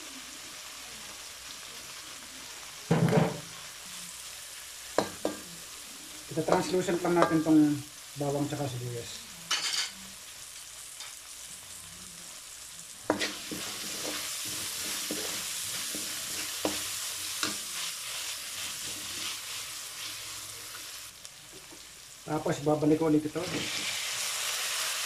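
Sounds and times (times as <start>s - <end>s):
onions sizzling in oil: 0.0s - 25.0s
metal spatula scraping pan: 13.1s - 17.9s.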